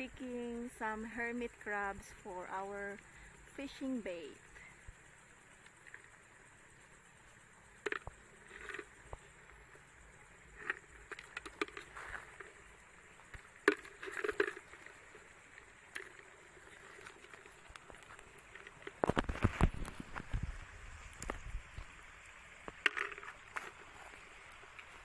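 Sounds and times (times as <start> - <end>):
low thumps and rustles: 13.2 - 22.0.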